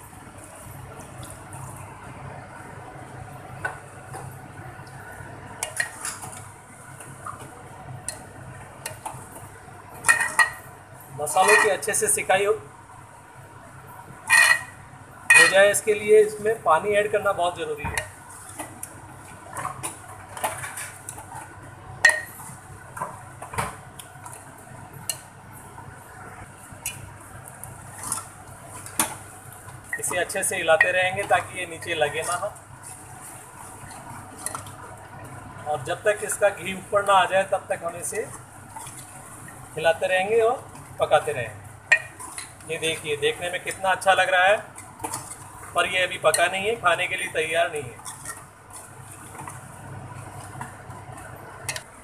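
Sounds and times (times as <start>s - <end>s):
metal spoon stirring in a metal pot: 5.6s - 6.6s, 8.0s - 10.7s, 11.3s - 11.9s, 14.2s - 15.8s, 41.8s - 50.6s
ladle scraping metal pot: 11.3s - 11.9s, 14.3s - 15.6s.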